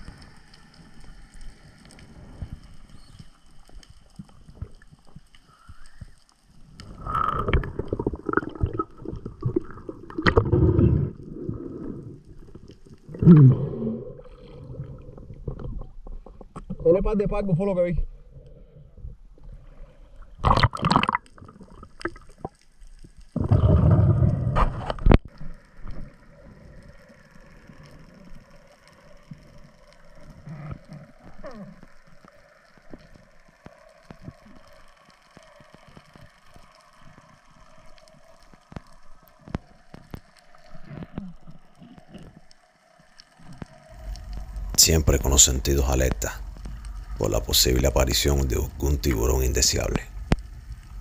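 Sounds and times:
faint underwater clicks: 0.0s - 16.9s, 20.2s - 51.0s
water splashing: 6.8s - 16.4s, 20.4s - 31.4s, 32.0s - 51.0s
faint steady hum: 22.8s - 51.0s.

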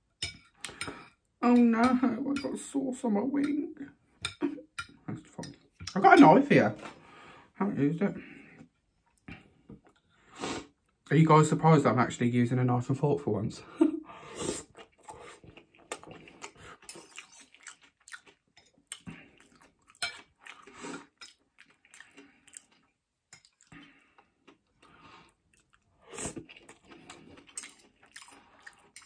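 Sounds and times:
person chewing noodles: 14.3s - 29.0s.

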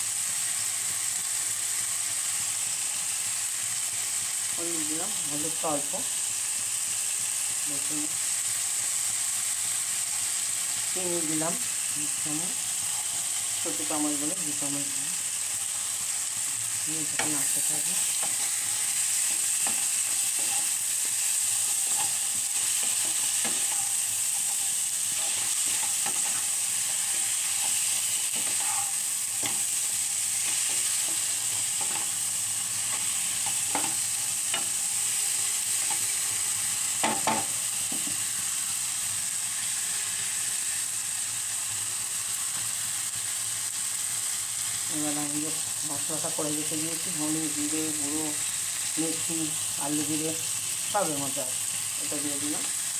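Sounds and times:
food sizzling in frying pan: 0.0s - 52.9s.

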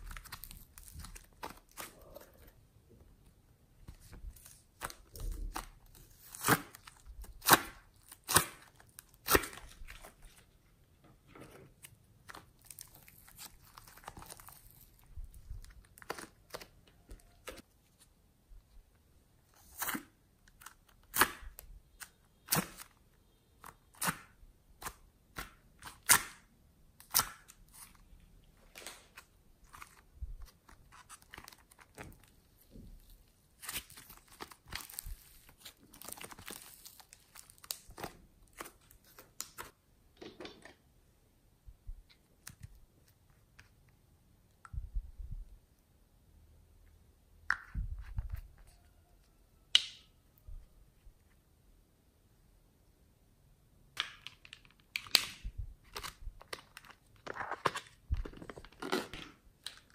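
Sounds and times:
plastic tubs clicking and crackling: 53.9s - 59.9s.

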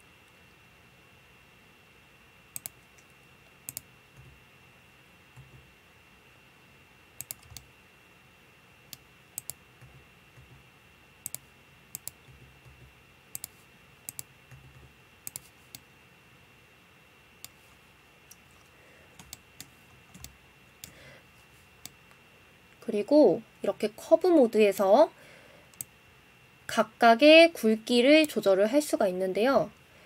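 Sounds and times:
faint high-pitched whine: 0.0s - 30.0s
mouse and keyboard clicking: 2.6s - 3.1s, 3.7s - 3.9s, 7.2s - 7.7s, 8.9s - 9.6s, 11.2s - 15.8s.

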